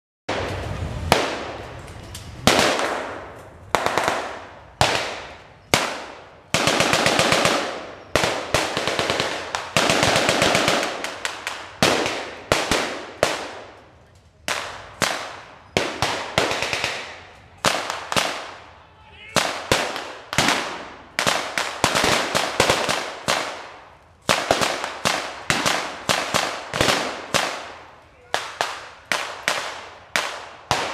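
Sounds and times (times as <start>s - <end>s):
rifle shots with echo: 2.5s - 13.8s, 19.3s - 30.9s
automatic gunfire bursts: 5.8s - 11.1s.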